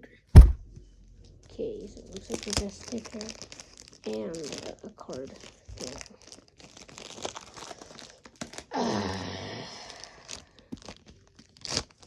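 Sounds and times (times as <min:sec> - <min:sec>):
packaging crinkling and tearing: 0:01.4 - 0:12.0
person sighing: 0:08.7 - 0:10.5.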